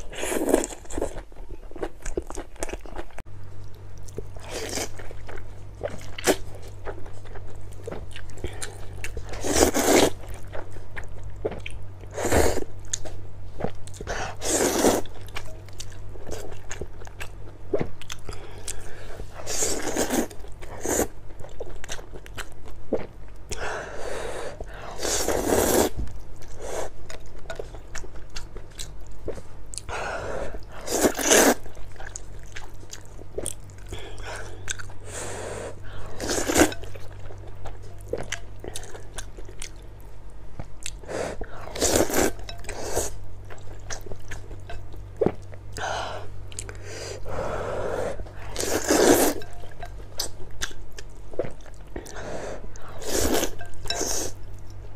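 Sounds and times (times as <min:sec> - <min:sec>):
low steady hum: 0:00.0 - 0:54.9
person slurping noodles: 0:47.4 - 0:49.4.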